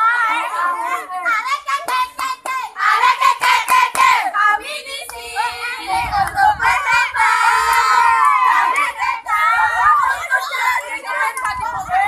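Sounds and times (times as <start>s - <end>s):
girls chanting a cheer: 0.0s - 12.0s
hand claps: 1.8s - 2.6s, 3.4s - 4.2s.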